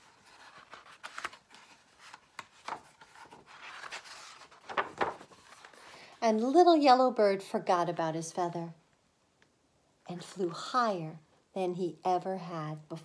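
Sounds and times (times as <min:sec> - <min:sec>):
book pages turning: 0:00.0 - 0:06.0.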